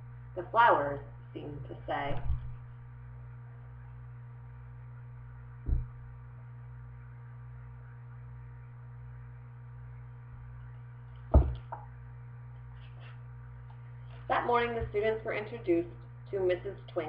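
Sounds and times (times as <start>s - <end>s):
low electrical hum: 0.0s - 17.0s
book thumps: 11.3s - 11.8s.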